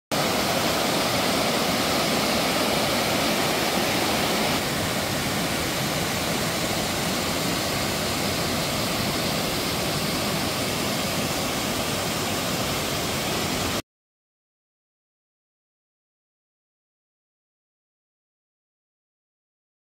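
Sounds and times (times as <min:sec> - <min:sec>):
stream rushing over rocks: 0:00.1 - 0:13.8
waterfall pouring into pool: 0:00.1 - 0:13.8.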